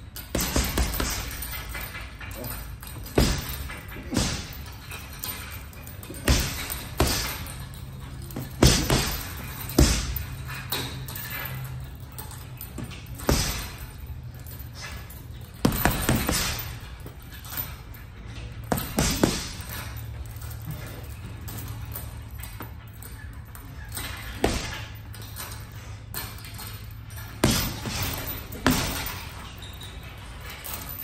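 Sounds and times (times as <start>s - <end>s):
steady low hum: 0.0s - 31.0s
punches thudding on heavy bag: 0.2s - 1.8s, 2.8s - 4.7s, 6.0s - 7.6s, 8.3s - 11.4s, 12.7s - 14.0s, 15.6s - 17.2s, 18.6s - 19.8s, 24.1s - 25.0s, 27.3s - 29.4s.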